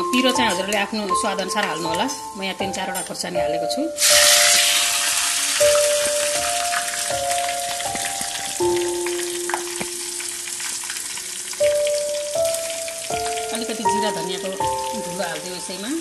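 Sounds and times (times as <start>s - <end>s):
chillies sizzling in oil: 4.0s - 16.0s.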